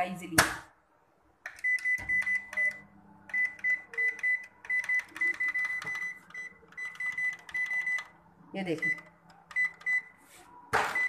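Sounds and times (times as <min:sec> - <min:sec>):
microwave keypad beeping: 0:01.5 - 0:08.2, 0:08.8 - 0:10.2.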